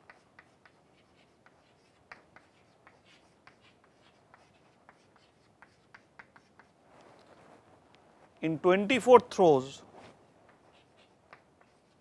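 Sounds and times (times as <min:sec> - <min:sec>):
chalk tapping and scratching: 0:00.0 - 0:07.3, 0:10.0 - 0:12.0.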